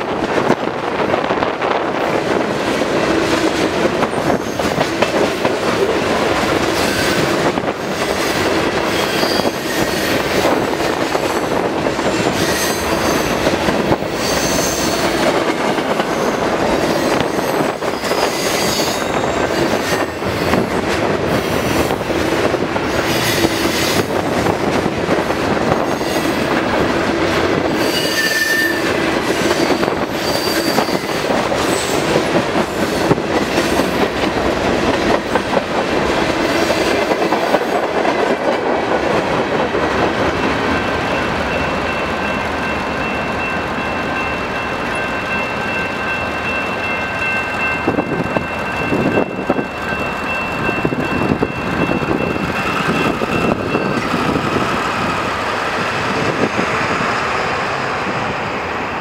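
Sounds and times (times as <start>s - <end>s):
train rolling rumble: 0.0s - 28.0s, 28.8s - 59.0s
steady high tone: 40.4s - 59.0s.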